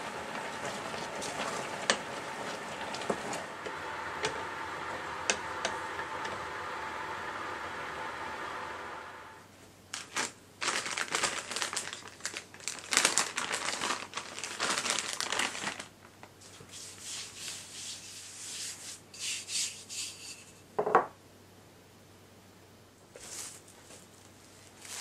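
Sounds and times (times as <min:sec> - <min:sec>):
paper bag crinkling: 0:09.9 - 0:16.3, 0:23.2 - 0:25.0.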